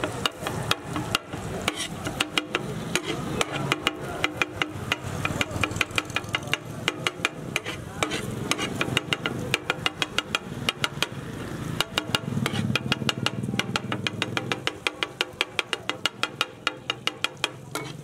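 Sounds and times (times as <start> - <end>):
metal spatula clattering on griddle: 0.0 - 11.2, 11.8 - 18.0
light sizzle: 16.6 - 18.0.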